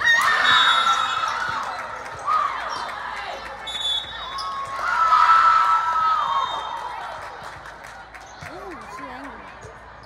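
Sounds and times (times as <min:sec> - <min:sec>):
shoe squeaks on gym floor: 0:03.7 - 0:04.7.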